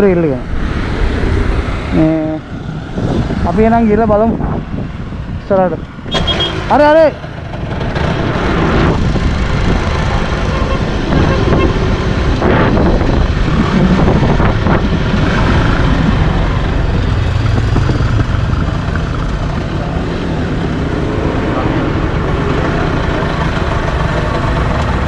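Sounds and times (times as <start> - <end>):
wind rumble on microphone: 0.4 - 6.1, 7.5 - 23.6
motorcycle engine: 6.0 - 25.0.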